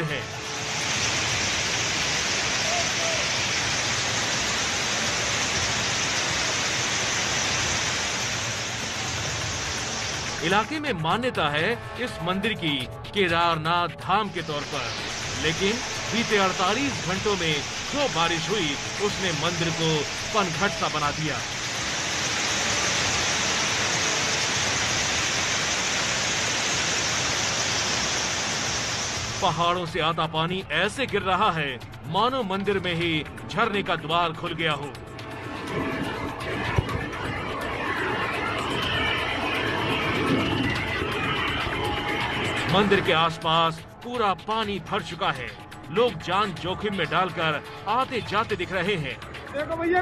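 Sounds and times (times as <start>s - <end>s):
water rushing down rocks: 0.0s - 10.8s, 14.3s - 29.8s
torrential rain pouring: 0.0s - 11.5s, 14.0s - 31.8s, 32.5s - 43.7s.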